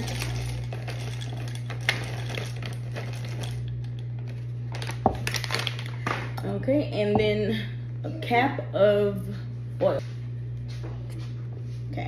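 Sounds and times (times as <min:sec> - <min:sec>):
chocolate wafers clattering into glass: 0:00.0 - 0:03.7
plastic bag crinkling: 0:00.0 - 0:06.1
steady low hum: 0:00.0 - 0:12.0.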